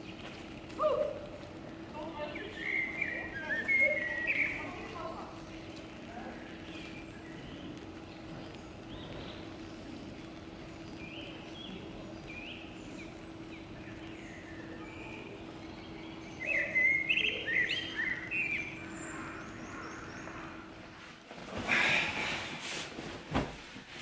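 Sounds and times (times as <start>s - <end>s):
birds chirping: 0.0s - 21.0s
steady low hum: 0.0s - 24.0s
bedding rustling: 21.0s - 24.0s.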